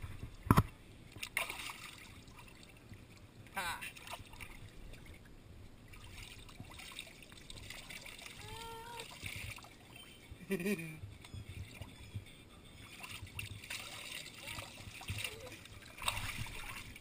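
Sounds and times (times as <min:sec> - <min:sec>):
water trickling and splashing: 0:00.0 - 0:17.0
toddler vocal sound: 0:08.4 - 0:09.1.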